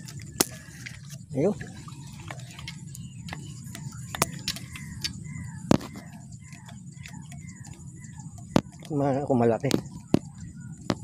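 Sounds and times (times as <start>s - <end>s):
low steady rumble: 0.0s - 11.0s
sharp clicks and ticks: 2.3s - 11.0s.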